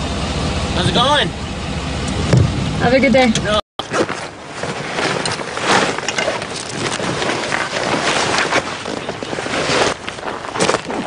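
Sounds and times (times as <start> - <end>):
backpack rustling and scuffing: 3.8 - 11.0
crackles and scrapes: 3.8 - 11.0.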